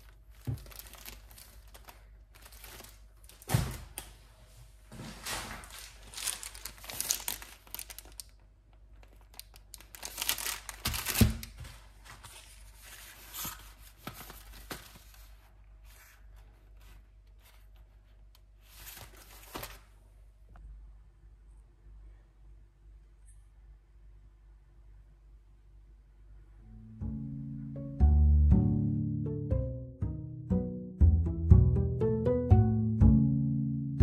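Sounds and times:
plastic wrappers crinkling: 0.0 - 4.2, 5.1 - 17.9, 18.6 - 20.0.

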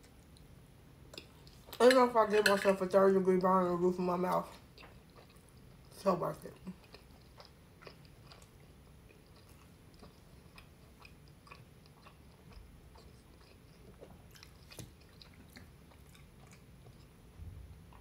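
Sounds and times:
chewing food: 4.3 - 18.0.

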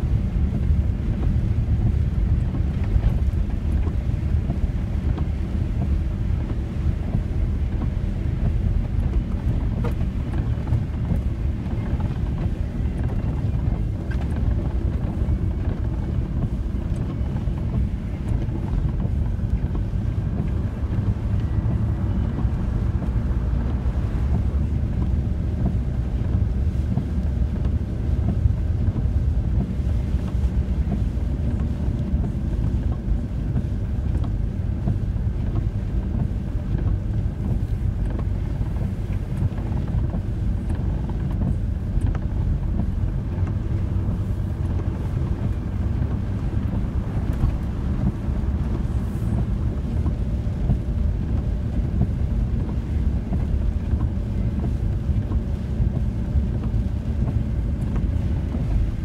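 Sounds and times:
engine and tyres on wet road: 0.0 - 59.0.

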